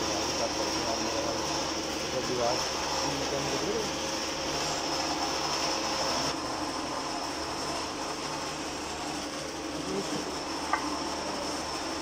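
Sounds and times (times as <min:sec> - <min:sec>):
machinery hum with high hiss: 0:00.0 - 0:12.0.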